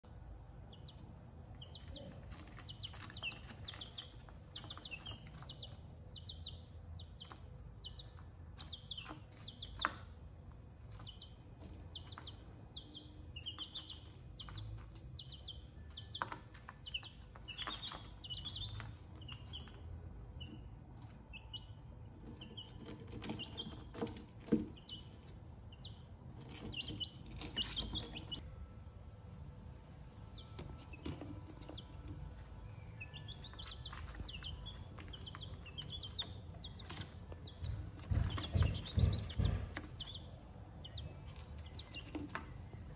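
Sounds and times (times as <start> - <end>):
baby chicks peeping: 0.0 - 42.9
sharp knocks: 37.6 - 40.3.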